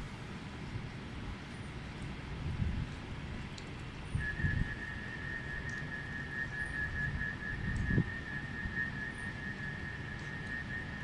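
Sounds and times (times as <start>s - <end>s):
wind rumble on microphone: 0.0s - 11.0s
high-pitched whistling tone: 4.1s - 11.0s.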